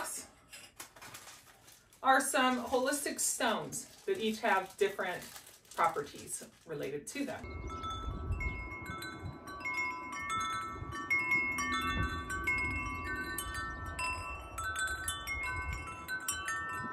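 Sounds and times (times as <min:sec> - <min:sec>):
low rumble: 0:07.3 - 0:16.8
wind chime ringing: 0:07.4 - 0:16.9.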